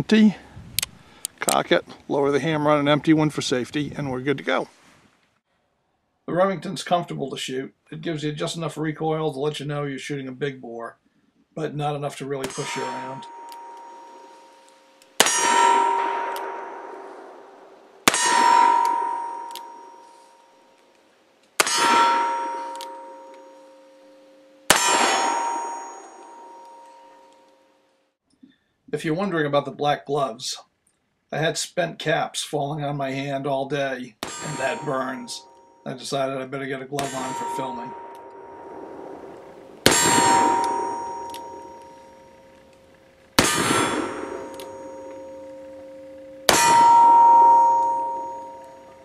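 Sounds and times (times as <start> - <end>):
metallic ringing: 12.4 - 21.0, 21.6 - 28.0, 34.2 - 49.0
revolver gunshot: 15.2 - 19.2, 37.0 - 41.6, 43.4 - 44.9
revolver shots: 38.6 - 42.0.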